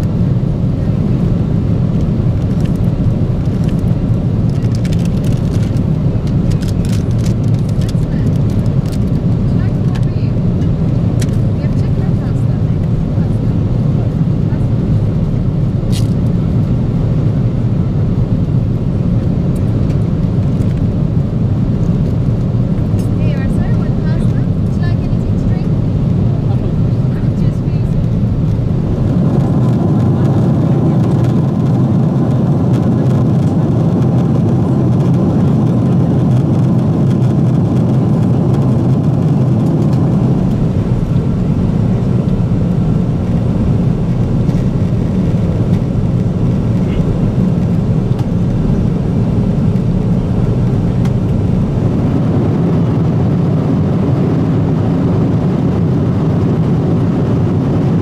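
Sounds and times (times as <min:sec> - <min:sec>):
airplane cabin engine and airflow rush: 0:00.0 - 0:58.0.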